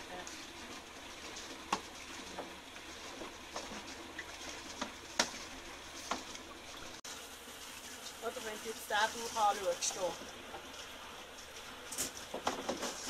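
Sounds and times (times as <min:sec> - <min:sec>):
knocks and splashes of fish: 0:00.0 - 0:07.0, 0:07.9 - 0:13.0
water bubbling and trickling: 0:00.0 - 0:13.0.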